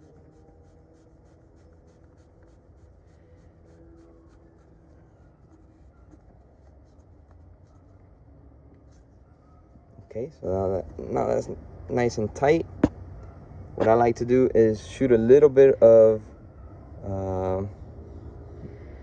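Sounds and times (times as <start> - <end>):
scratchy rubbing of plastic collar: 0.0 - 9.4.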